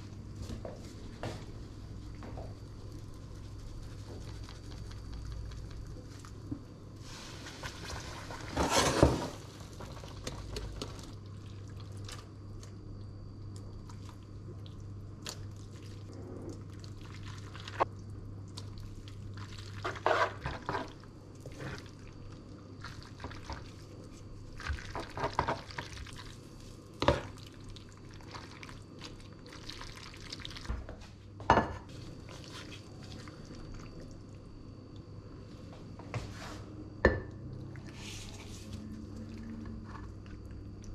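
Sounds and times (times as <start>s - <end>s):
steady low hum: 0.0s - 40.9s
pasta stirring in a pan: 2.4s - 12.2s, 18.5s - 30.7s.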